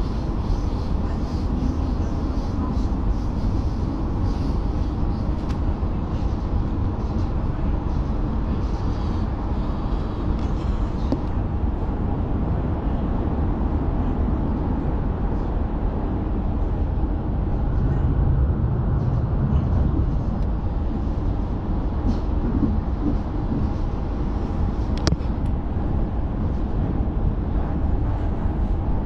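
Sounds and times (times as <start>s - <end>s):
train wheels rumbling on track: 0.0s - 29.0s.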